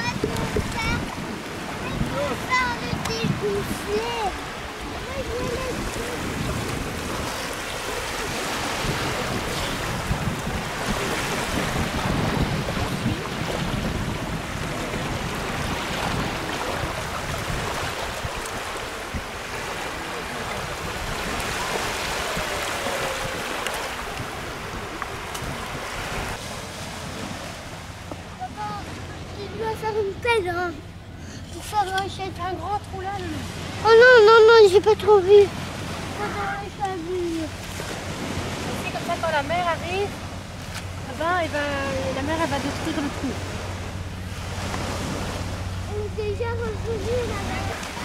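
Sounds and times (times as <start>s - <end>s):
wind rumbling on microphone: 0.0s - 30.9s
sea surf washing: 0.0s - 48.0s.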